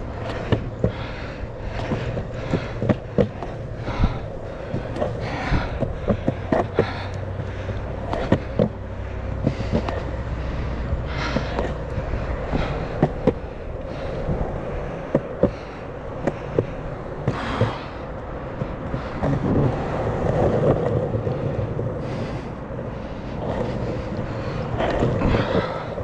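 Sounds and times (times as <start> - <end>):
skateboard wheels clicking: 0.0 - 26.0
skateboard wheels rolling on pavement: 0.0 - 26.0.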